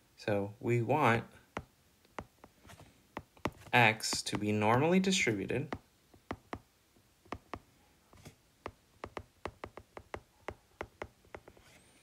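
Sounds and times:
stylus tapping on glass screen: 1.5 - 2.6, 3.2 - 4.6, 5.7 - 6.7, 7.3 - 7.7, 8.6 - 11.6.

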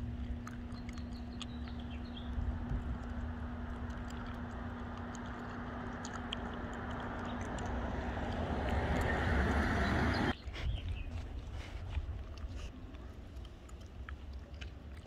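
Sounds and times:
low rumble: 0.0 - 12.7.

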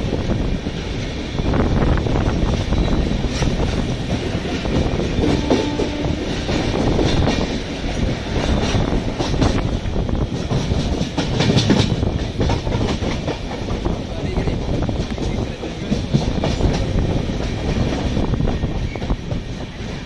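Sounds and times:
wind: 0.0 - 20.0
wheels clacking over rail joints: 2.5 - 20.0.

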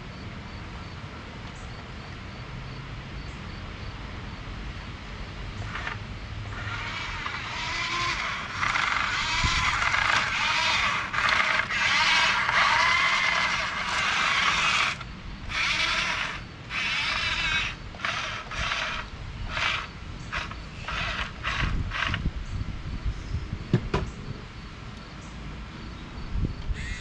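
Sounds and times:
wheels on gravel: 5.6 - 22.2
toy truck electric motor: 5.6 - 22.3.

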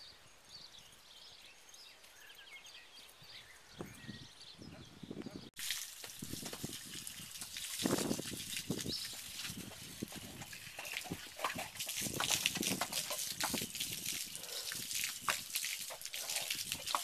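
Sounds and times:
garden hose water spraying: 5.6 - 17.0.

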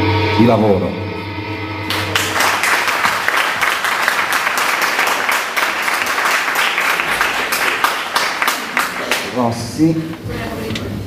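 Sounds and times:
audience applauding: 1.9 - 9.8.

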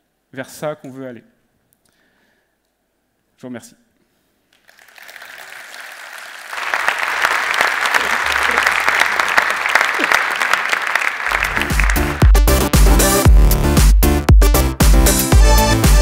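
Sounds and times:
audience applause: 4.6 - 12.6.

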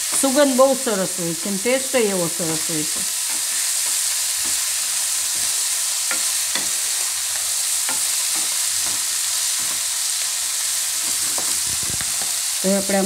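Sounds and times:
leaves sizzling in hot oil: 0.0 - 13.0
spatula clicking against pan: 5.3 - 9.8.

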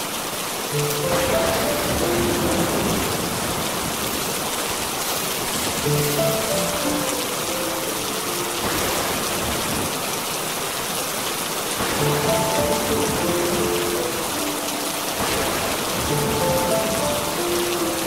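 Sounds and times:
steady rain: 0.0 - 18.0
soft musical notes: 0.7 - 3.5, 5.8 - 9.2, 11.9 - 18.0.

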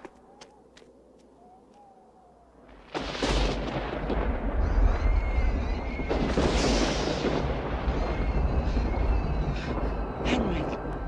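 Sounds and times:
thunder crash and rumble: 2.8 - 11.0.

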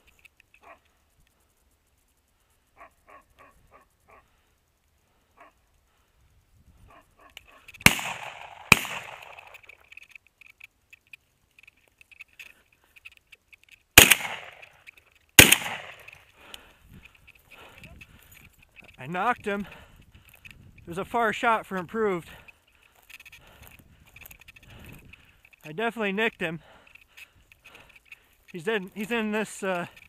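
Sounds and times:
shotgun shots: 7.8 - 9.7, 14.0 - 14.6, 15.4 - 16.1.

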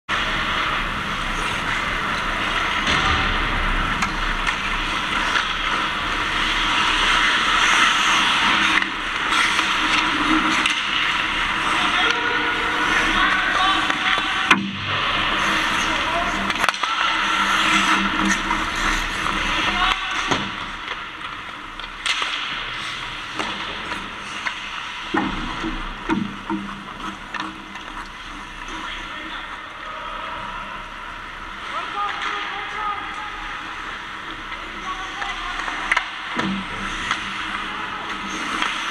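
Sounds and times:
skates scraping ice: 0.1 - 38.9
hockey sticks clacking on puck: 4.0 - 28.9, 32.0 - 32.8, 34.4 - 38.9
skates hissing on ice: 4.6 - 13.8, 15.0 - 20.3.

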